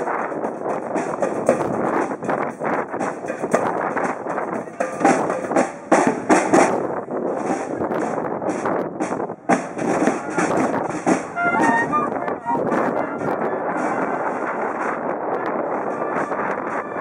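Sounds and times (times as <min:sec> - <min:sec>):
wind instrument notes: 0:00.0 - 0:08.1, 0:09.0 - 0:17.0
people talking: 0:04.5 - 0:06.6, 0:09.9 - 0:14.6.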